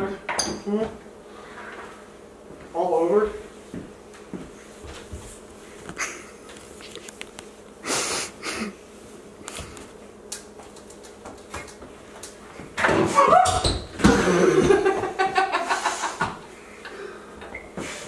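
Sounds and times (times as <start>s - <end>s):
person stifling laughter: 14.0s - 16.4s.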